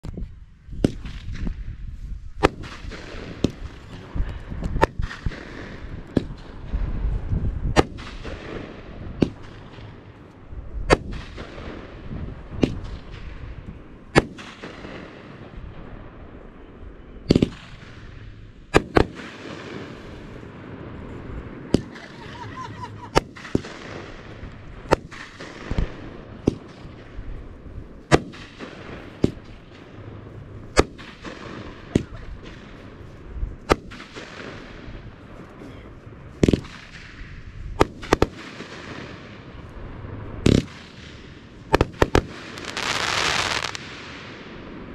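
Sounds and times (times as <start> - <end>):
firework cake bangs echoing: 7.7 - 10.0, 10.9 - 15.6, 17.3 - 20.8, 21.6 - 27.4, 36.4 - 39.5, 40.4 - 44.7.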